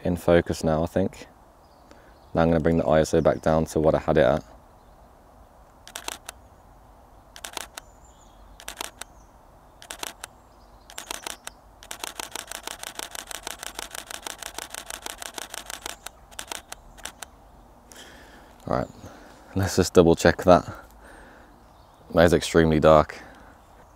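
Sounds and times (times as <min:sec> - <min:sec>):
camera shutter clicking: 0:05.8 - 0:06.4, 0:07.4 - 0:07.9, 0:08.6 - 0:09.1, 0:09.8 - 0:17.3.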